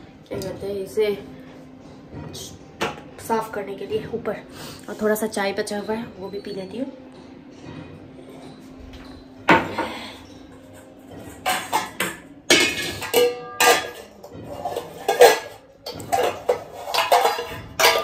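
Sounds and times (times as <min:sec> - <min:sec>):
dishes clattering and clinking: 0:07.6 - 0:18.0.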